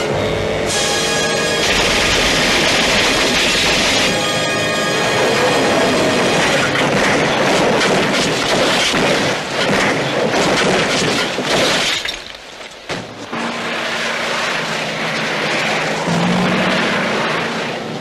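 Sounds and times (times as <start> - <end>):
crumpling metal and breaking glass: 7.7 - 12.9.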